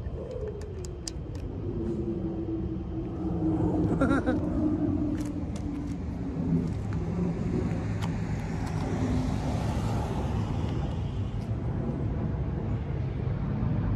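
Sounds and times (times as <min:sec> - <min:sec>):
motor vehicle rumble: 0:00.0 - 0:13.9
faint clicks: 0:00.1 - 0:01.6.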